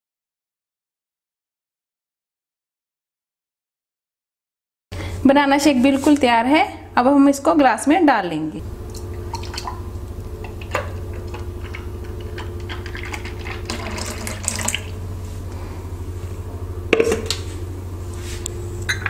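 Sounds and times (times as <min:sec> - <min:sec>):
steady low hum: 0:04.9 - 0:19.0
milkshake pouring into a glass: 0:10.5 - 0:15.0.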